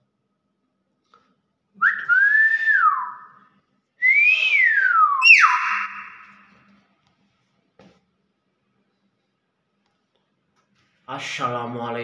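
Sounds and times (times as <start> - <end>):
myna whistled calls: 4.2 - 6.5.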